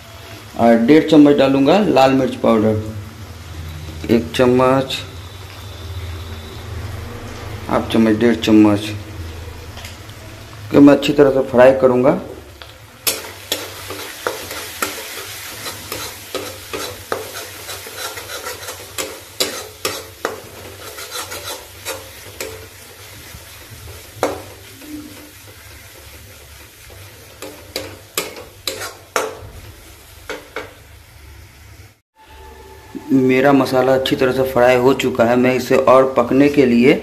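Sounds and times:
masala sizzling in oil: 0:00.0 - 0:37.0
metal spatula scraping pan: 0:13.0 - 0:29.5.

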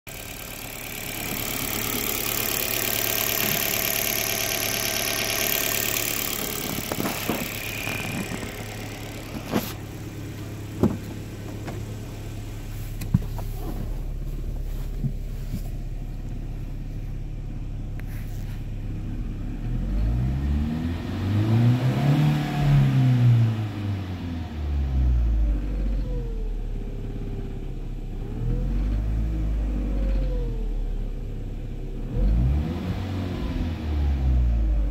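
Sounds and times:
car engine revving: 0:00.1 - 0:16.4, 0:18.3 - 0:26.1, 0:32.0 - 0:34.9
car engine idling: 0:00.1 - 0:20.2
sharp clicks and knocks: 0:06.3 - 0:09.8, 0:10.8 - 0:11.9.

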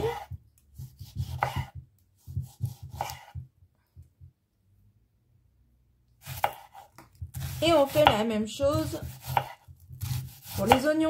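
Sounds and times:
knife slicing tomato on board: 0:00.0 - 0:03.5, 0:06.2 - 0:11.0.

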